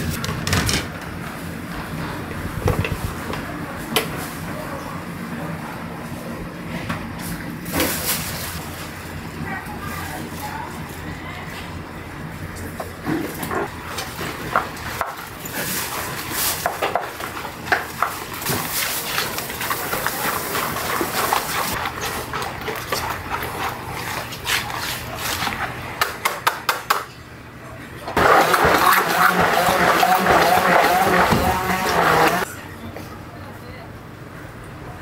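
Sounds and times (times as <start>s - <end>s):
immersion blender motor: 28.2s - 32.5s.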